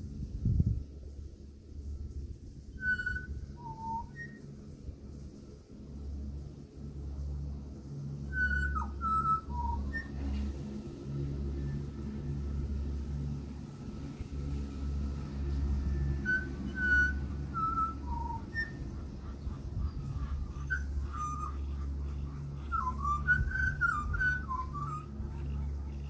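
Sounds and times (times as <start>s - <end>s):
low rumble: 0.0s - 26.0s
bird singing whistled notes: 2.7s - 4.6s, 8.1s - 10.5s, 15.8s - 26.0s.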